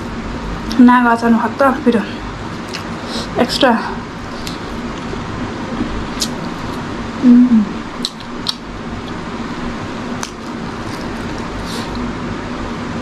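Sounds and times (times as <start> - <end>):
low hum and hiss: 0.0 - 13.0
mouth clicks and lip smacks: 6.2 - 6.4, 8.0 - 9.2
person humming: 7.2 - 7.8.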